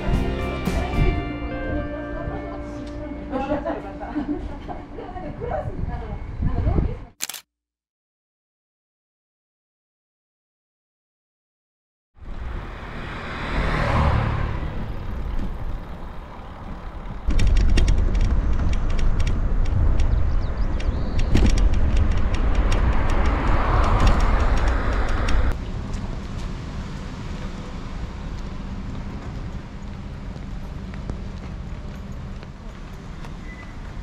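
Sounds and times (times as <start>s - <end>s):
vehicle passing by: 12.2s - 17.3s, 21.8s - 30.3s.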